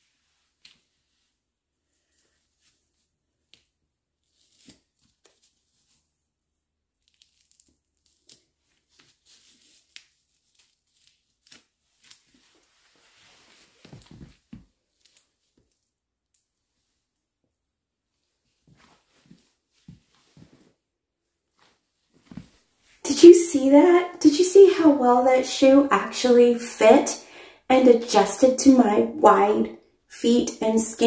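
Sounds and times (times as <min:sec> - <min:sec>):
velcro straps ripping open: 0:04.2 - 0:06.0, 0:07.0 - 0:12.9, 0:14.9 - 0:15.8.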